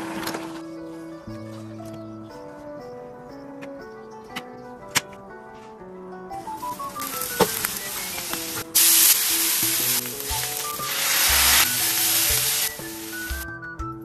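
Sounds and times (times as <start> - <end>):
background music: 0.0 - 14.0
eggs sizzling in oil: 6.4 - 13.4.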